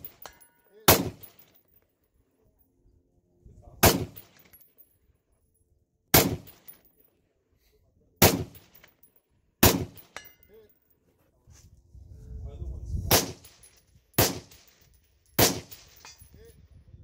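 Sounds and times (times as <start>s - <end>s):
rifle shots echoing: 0.0s - 1.6s, 3.8s - 4.5s, 6.1s - 6.8s, 8.2s - 8.9s, 9.6s - 10.3s, 13.1s - 14.7s, 15.4s - 16.2s.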